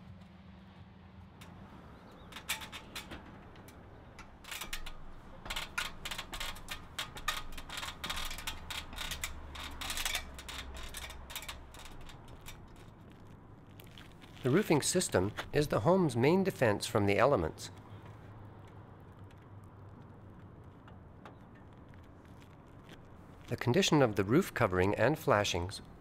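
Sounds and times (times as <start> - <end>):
metal ladder clanking and rattling: 1.4 - 12.9.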